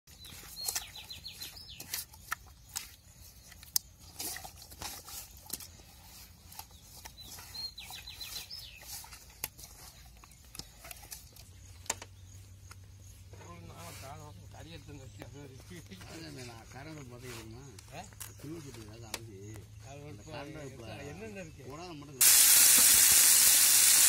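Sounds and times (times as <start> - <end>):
bird singing falling notes: 0.1 - 3.8
fish handled in metal basin: 0.1 - 12.5.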